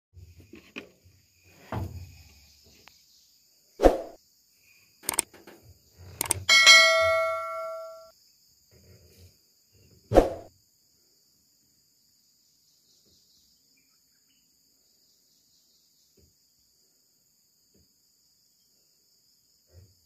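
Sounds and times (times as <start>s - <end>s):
faint high insect drone: 0.2s - 20.0s
hand tools knocking on metal: 6.4s - 8.1s
metal clang ringing: 6.4s - 8.1s.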